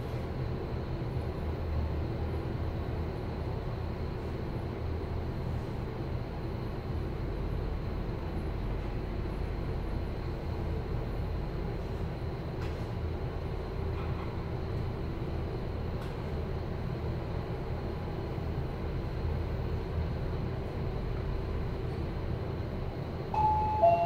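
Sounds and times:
elevator hum and rumble: 0.0s - 24.0s
faint steady tone: 23.4s - 24.0s
two-note falling chime: 23.4s - 24.0s.

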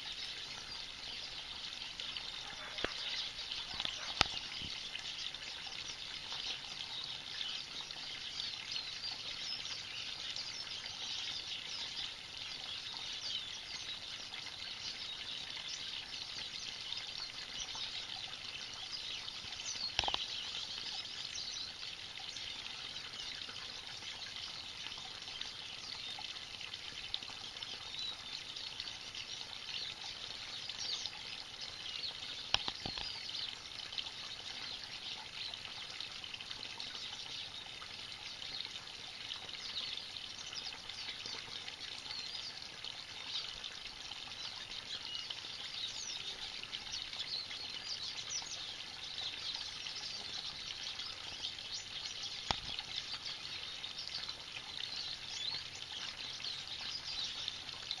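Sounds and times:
small birds chirping: 0.0s - 58.0s
water spilling over waterfall: 0.0s - 58.0s.

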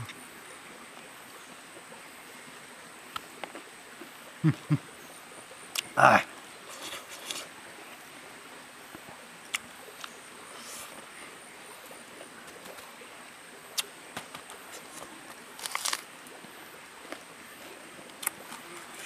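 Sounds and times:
faint steady hiss: 0.0s - 19.0s
mouth clicks and smacks: 13.7s - 15.0s.

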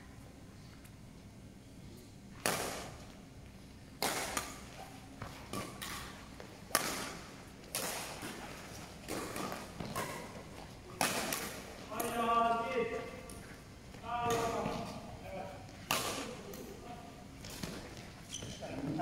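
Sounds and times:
racket striking shuttlecock: 4.0s - 8.4s, 11.0s - 12.2s, 15.8s - 16.7s.

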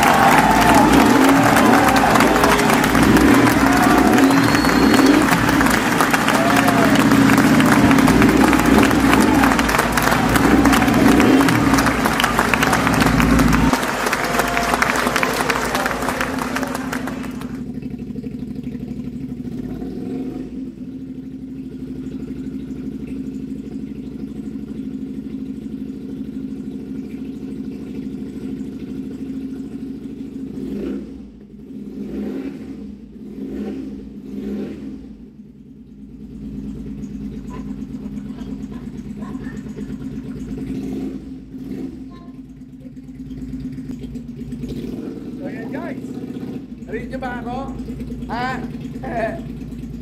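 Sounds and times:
motorcycle engine idling: 0.0s - 31.9s, 35.1s - 50.0s
throttle blips: 3.0s - 6.0s.

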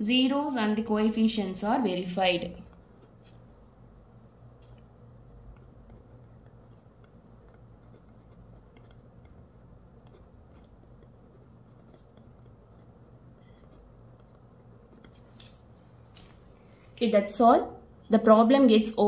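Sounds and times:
steady low hum: 0.0s - 19.0s
pen scratching on paper: 2.4s - 15.6s.

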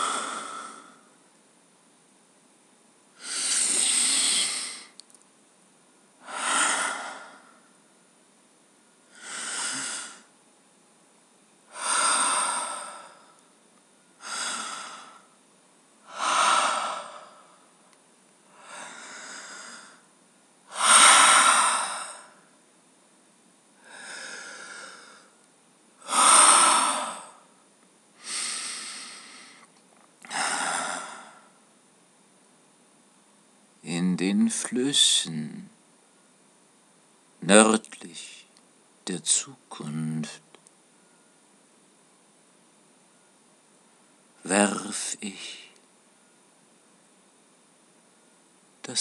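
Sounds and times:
person breathing deeply: 0.0s - 1.2s, 3.2s - 5.0s, 6.2s - 7.8s, 9.1s - 10.3s, 11.7s - 13.4s, 14.2s - 15.4s, 16.1s - 17.7s, 18.5s - 20.1s, 20.7s - 22.5s, 23.8s - 25.4s, 26.0s - 27.5s, 28.2s - 31.6s.

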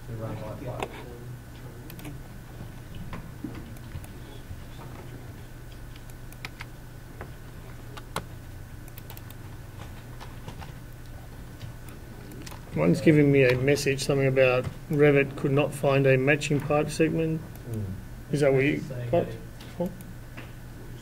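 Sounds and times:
low computer hum: 0.0s - 21.0s
computer mouse clicks: 1.9s - 2.2s, 5.8s - 6.7s, 8.0s - 9.4s.

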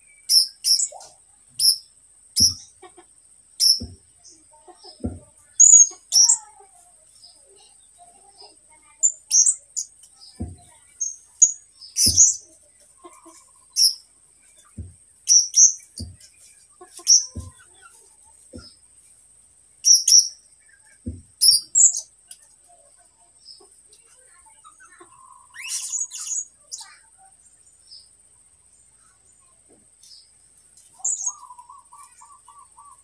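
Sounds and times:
bird chirping: 0.0s - 3.0s, 3.6s - 33.0s
soft low thumps: 2.4s - 2.6s, 5.0s - 5.4s, 10.4s - 10.8s, 14.7s - 15.1s, 15.9s - 16.3s, 21.0s - 21.4s.

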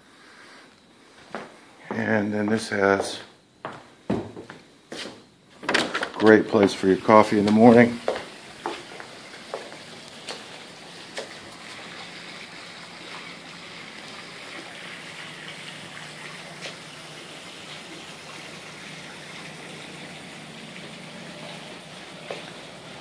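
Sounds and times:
water hissing: 6.8s - 23.0s.

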